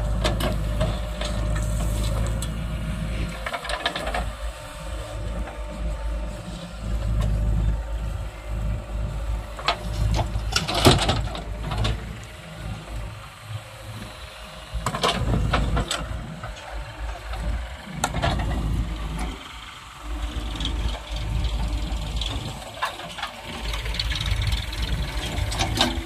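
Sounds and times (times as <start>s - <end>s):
diesel engine working under load: 0.0s - 26.0s.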